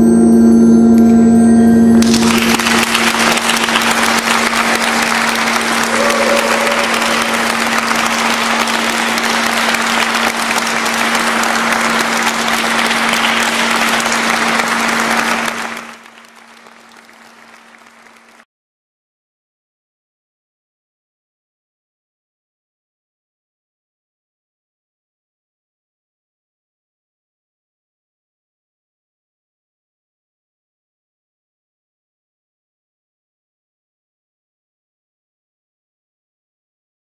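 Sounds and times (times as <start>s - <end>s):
gong ringing: 0.3s - 14.6s
audience applauding: 2.0s - 18.4s.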